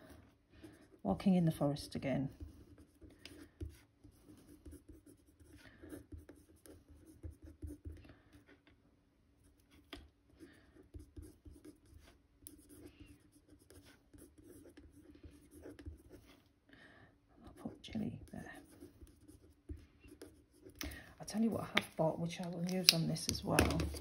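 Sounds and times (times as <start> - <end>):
pen scratching on card: 10.8 - 16.4.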